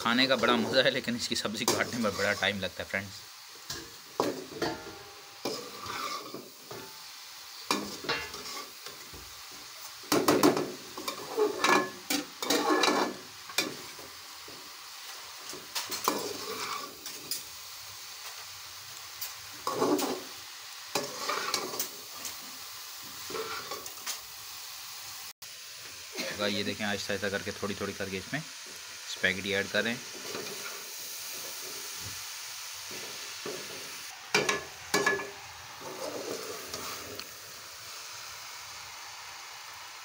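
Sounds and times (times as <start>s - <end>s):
steady sizzle: 0.0s - 40.0s
metal ladle scraping a pan: 1.6s - 2.6s, 3.7s - 7.0s, 7.7s - 8.9s, 11.0s - 13.9s, 15.7s - 17.4s, 19.6s - 20.3s, 20.9s - 21.9s, 23.2s - 23.9s, 34.4s - 37.2s.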